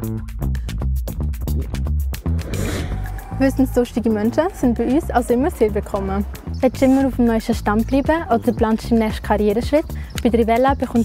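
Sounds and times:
upbeat electronic music: 0.0 - 11.0
hissing swell: 2.4 - 4.4.

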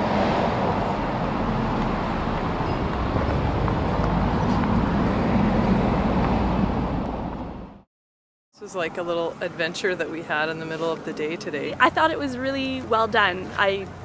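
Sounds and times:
passing vehicles rumbling: 0.0 - 7.9
road traffic noise: 0.0 - 7.9, 8.6 - 14.0.

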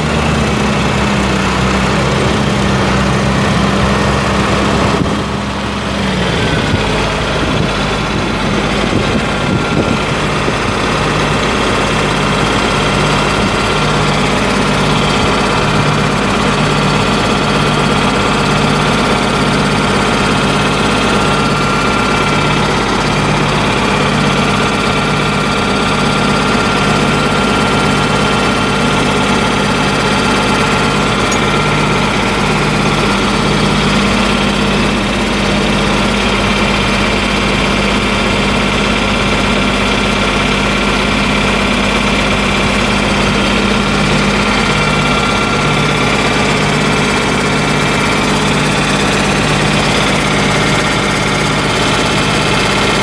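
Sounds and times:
tractor diesel engine idling: 0.0 - 53.0.

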